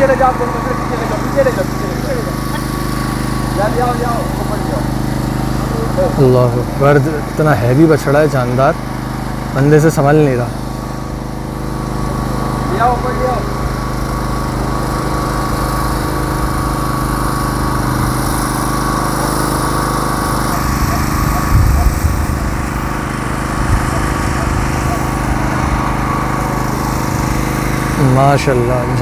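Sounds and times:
small engine humming: 0.0s - 29.0s.

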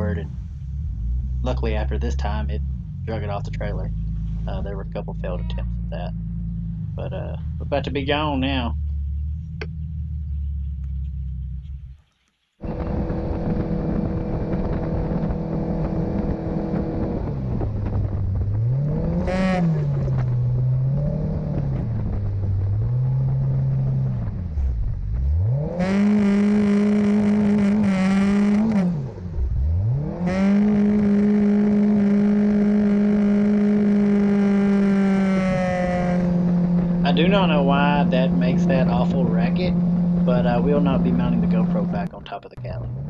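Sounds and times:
outboard motor revving: 12.6s - 22.0s, 25.2s - 43.0s.

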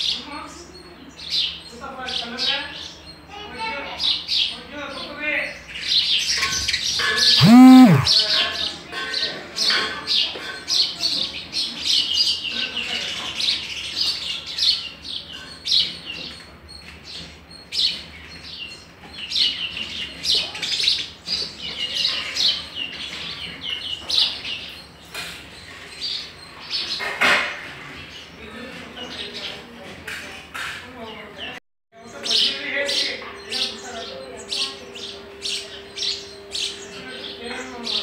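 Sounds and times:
low voice-like sound: 7.4s - 8.1s.

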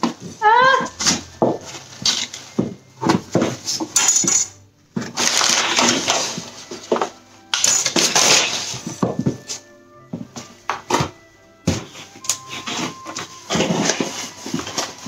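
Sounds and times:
tissue paper crinkling: 5.2s - 7.0s.

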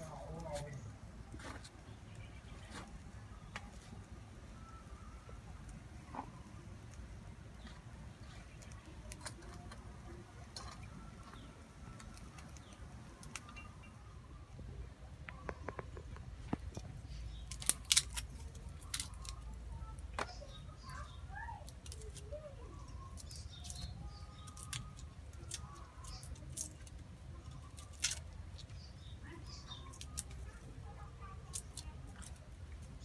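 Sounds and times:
bird chirps: 10.6s - 16.2s
small knife peeling garlic: 17.2s - 19.6s, 21.6s - 30.6s, 31.2s - 33.0s.

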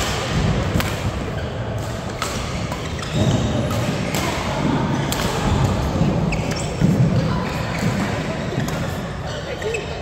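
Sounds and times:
rackets striking shuttlecock: 0.0s - 7.2s.

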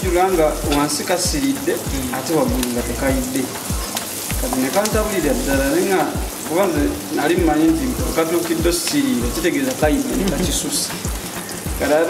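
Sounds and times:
music with a steady beat: 0.0s - 12.0s
onions sizzling in hot oil: 0.0s - 12.0s
wooden spatula stirring: 1.1s - 7.4s.

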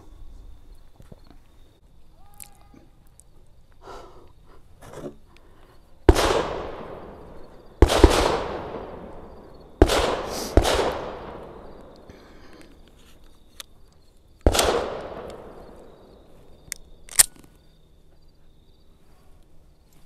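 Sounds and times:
pistol shots with echo: 6.1s - 12.0s, 14.4s - 16.1s.

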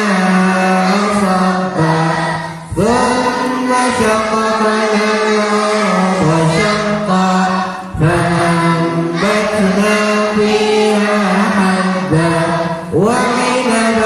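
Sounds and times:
voices chanting together: 0.0s - 14.0s.

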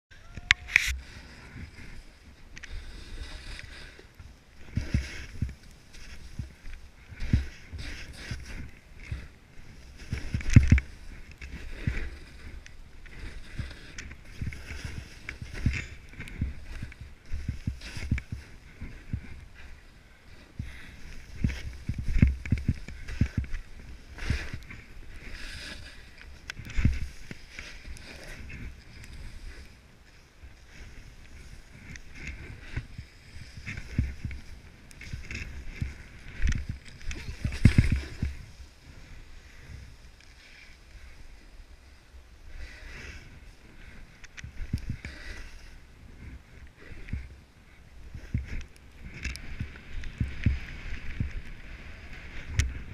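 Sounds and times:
wind rumble on microphone: 0.1s - 40.2s, 40.8s - 52.9s
skis hissing through snow: 0.6s - 47.4s.

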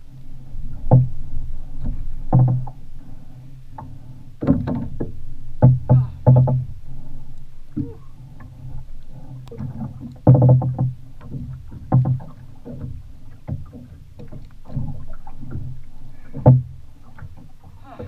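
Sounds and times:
waves slapping against hull: 0.0s - 18.0s
irregular knocks: 1.8s - 2.8s, 3.8s - 6.7s, 9.6s - 17.8s.

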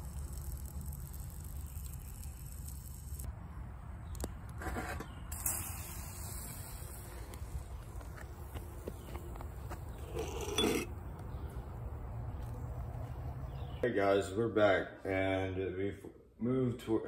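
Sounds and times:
cloth scraping metal pot: 10.1s - 10.9s.

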